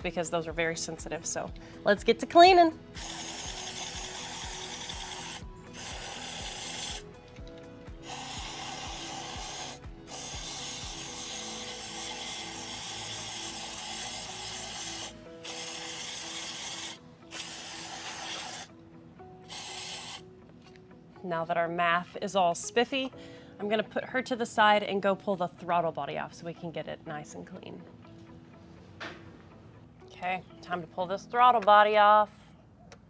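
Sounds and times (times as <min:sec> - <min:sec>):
aerosol can spraying: 0:02.9 - 0:07.2, 0:07.8 - 0:18.7, 0:19.4 - 0:20.2.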